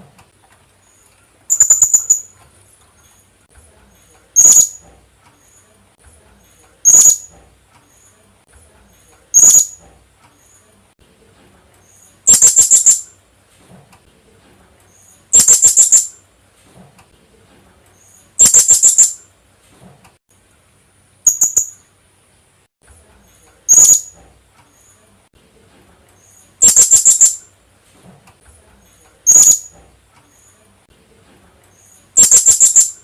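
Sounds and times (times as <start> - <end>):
parrot shrill calls: 1.5 - 2.3, 4.4 - 4.8, 6.8 - 7.3, 9.4 - 9.8, 12.3 - 13.1, 15.3 - 16.1, 18.4 - 19.2, 21.3 - 21.8, 23.7 - 24.1, 26.6 - 27.4, 29.2 - 29.7, 32.2 - 33.0.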